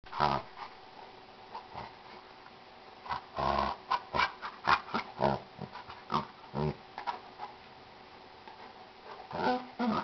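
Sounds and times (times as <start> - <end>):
dogs growling and yapping: 9.2 - 10.0.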